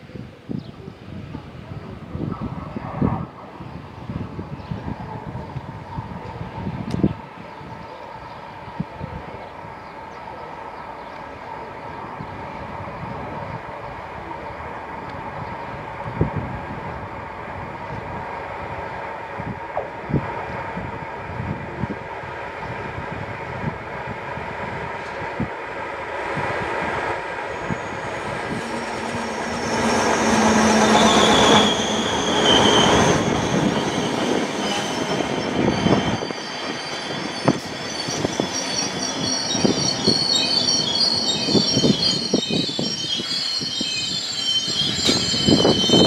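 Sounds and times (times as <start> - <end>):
train wheels squealing: 27.3 - 46.0.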